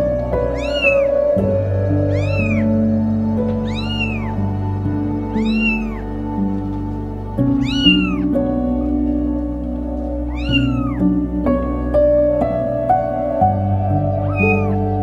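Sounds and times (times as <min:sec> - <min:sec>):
kittens meowing: 0:00.4 - 0:06.2, 0:07.5 - 0:08.4, 0:10.2 - 0:11.2, 0:14.2 - 0:15.0.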